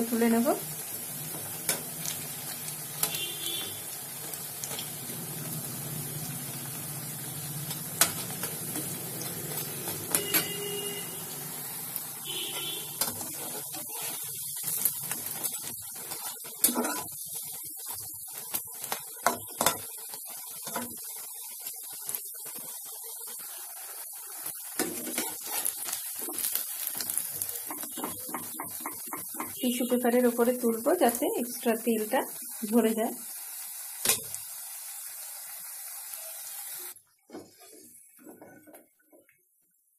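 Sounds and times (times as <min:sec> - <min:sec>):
fritters sizzling in oil: 0:00.0 - 0:38.7
spatula clicking and scraping pan: 0:01.3 - 0:02.2, 0:09.6 - 0:10.6, 0:13.0 - 0:17.2, 0:18.8 - 0:21.0, 0:24.8 - 0:29.6.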